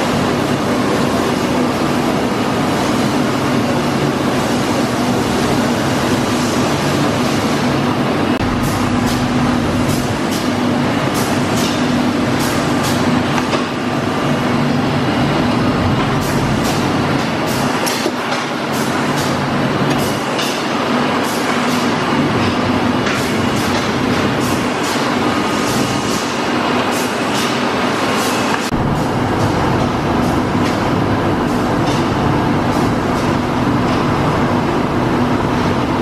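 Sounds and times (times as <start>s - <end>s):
loud machine hum: 0.0s - 36.0s
conveyor clicks and clacks: 15.9s - 34.6s.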